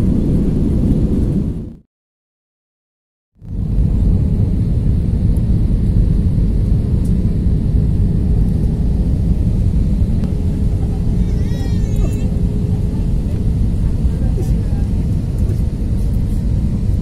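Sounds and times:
airliner cabin roar: 0.0 - 1.8, 3.4 - 17.0
faint steady hum: 3.4 - 17.0.

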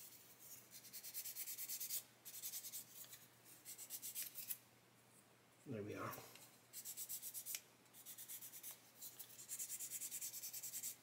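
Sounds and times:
sanding stick rasping on plastic: 0.7 - 2.8, 6.8 - 11.0.

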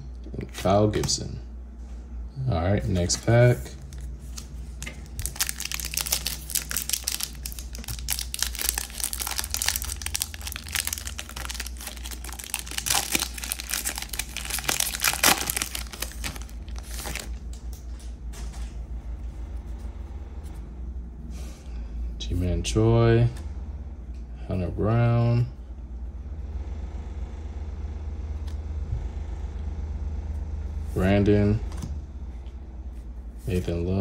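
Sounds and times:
plastic wrapper crinkling: 3.8 - 17.8.

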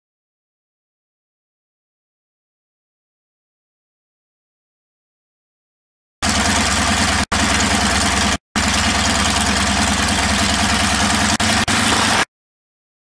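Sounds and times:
propeller rushing hiss: 6.2 - 12.3
radial aircraft engine running: 6.2 - 12.3.

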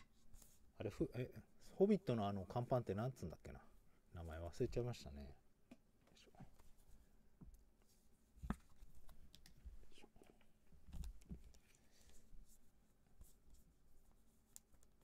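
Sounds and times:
cards tapping and rustling: 8.4 - 9.8.

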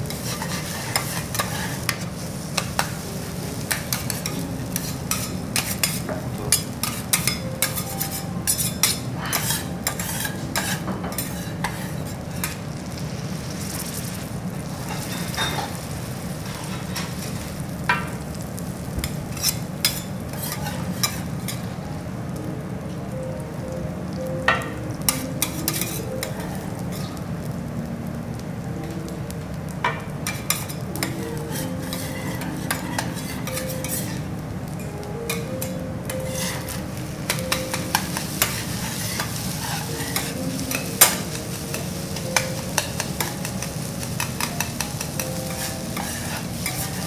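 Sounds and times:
food sizzling on griddle: 0.0 - 47.0
metal spatulas scraping griddle: 0.1 - 3.0, 3.6 - 12.6, 19.3 - 21.3, 31.4 - 34.3, 36.1 - 41.8, 42.4 - 47.0.

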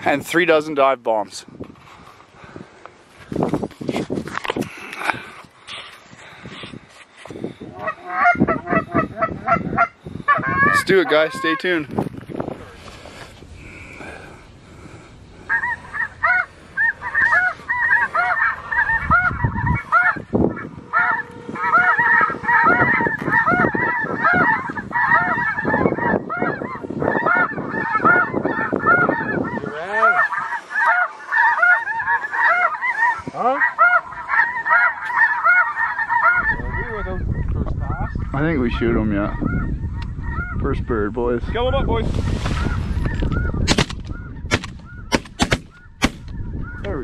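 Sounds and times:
high yelping goose calls: 7.6 - 11.9, 15.4 - 38.4, 39.2 - 40.6.

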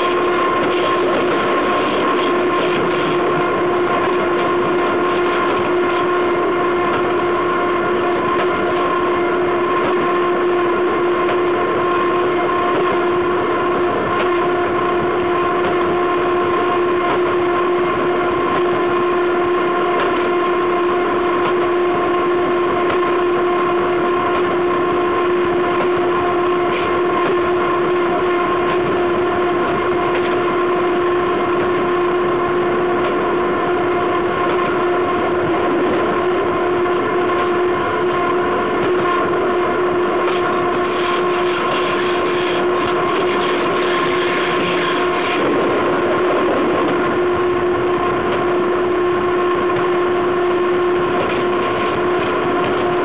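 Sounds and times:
steady wheel whine: 0.0 - 53.0
train wheels rolling rumble: 25.6 - 53.0.

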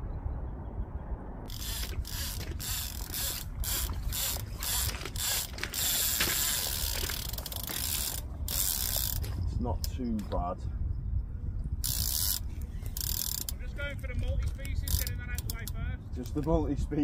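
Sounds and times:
fishing reel whirring: 1.5 - 9.3, 11.8 - 13.6.

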